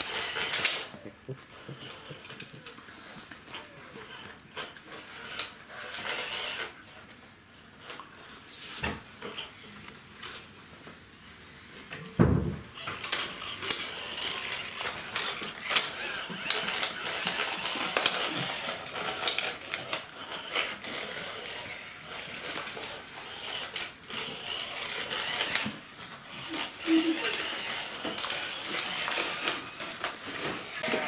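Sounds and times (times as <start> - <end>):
thump: 12.2 - 12.7
clicks scrapes and rattles: 12.8 - 31.0.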